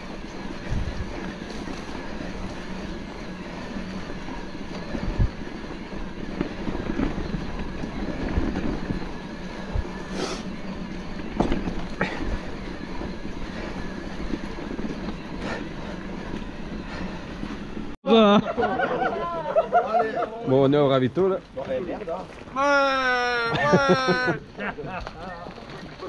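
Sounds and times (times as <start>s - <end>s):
bike tyre noise: 0.0s - 18.0s, 19.8s - 26.0s
wind: 0.0s - 26.0s
bike knocking over bumps: 11.2s - 13.2s.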